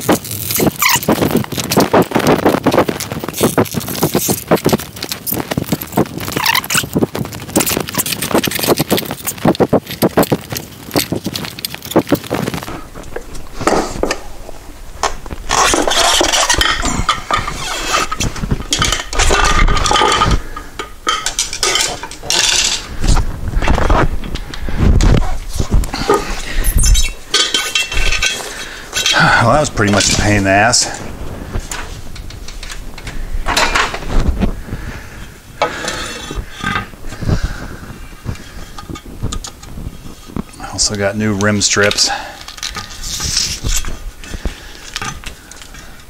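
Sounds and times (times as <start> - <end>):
rubber tire rubbing and scuffing: 0.0 - 19.4
metal scraping on wheel rim: 15.0 - 23.0.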